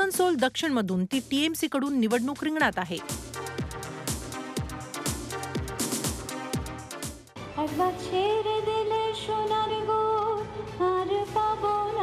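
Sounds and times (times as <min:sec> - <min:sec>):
woman singing into a microphone: 0:07.6 - 0:12.0.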